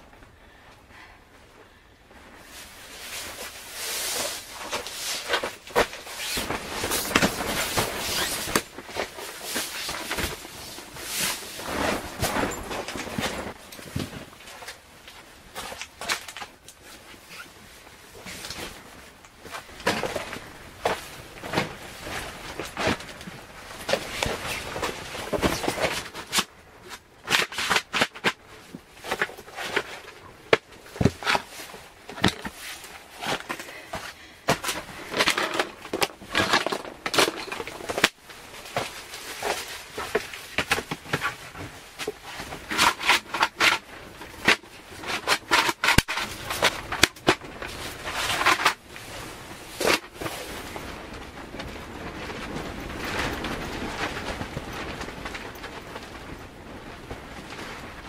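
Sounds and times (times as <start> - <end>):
nylon bedding rustling: 2.3 - 15.8.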